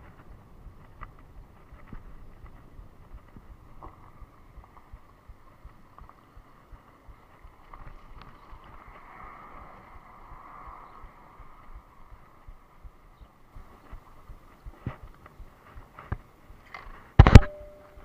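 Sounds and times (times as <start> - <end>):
wind buffeting microphone: 0.0 - 17.2
steady hum: 17.2 - 18.0.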